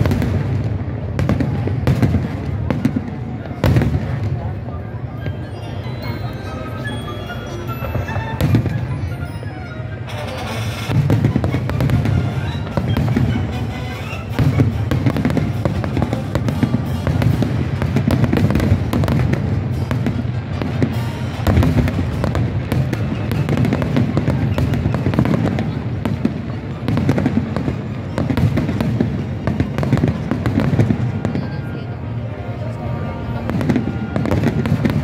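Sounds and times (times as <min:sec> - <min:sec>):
fireworks booming and crackling: 0:00.0 - 0:35.0
music playing: 0:04.8 - 0:23.9.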